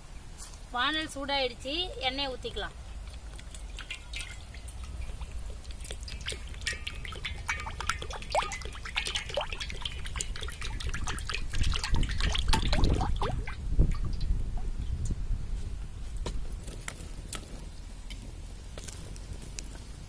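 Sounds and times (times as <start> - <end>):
oil pouring and splashing: 2.8 - 14.7
bubbling blips: 3.2 - 14.4.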